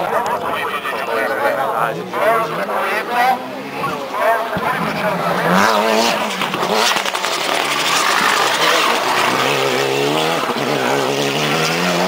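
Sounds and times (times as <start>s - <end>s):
race car engine accelerating: 1.8s - 12.0s.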